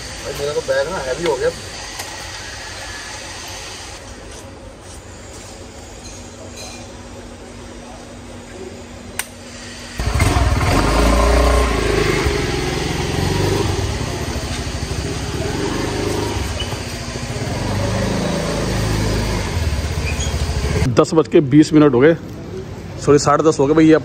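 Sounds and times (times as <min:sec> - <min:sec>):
single click: 0:09.2 - 0:09.4
motor scooter engine running: 0:10.0 - 0:20.9.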